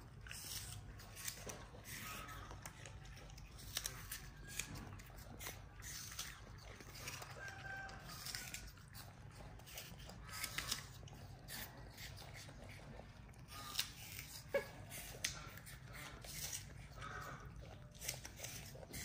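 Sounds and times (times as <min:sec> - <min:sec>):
monkey chewing and crunching: 0:00.0 - 0:19.0.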